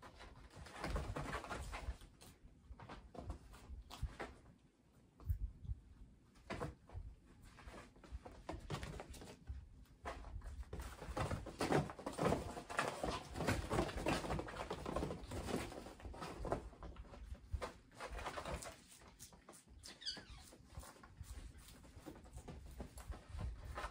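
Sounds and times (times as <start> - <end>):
kitten paws scuffling on cloth: 15.2 - 23.9.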